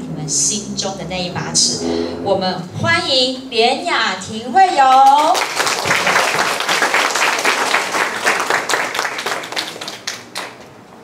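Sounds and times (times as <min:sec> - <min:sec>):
audience applauding: 0:05.2 - 0:10.7.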